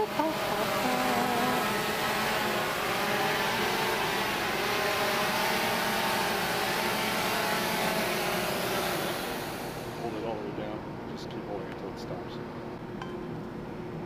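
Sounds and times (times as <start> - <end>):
quadcopter propellers buzzing: 0.0 - 10.5.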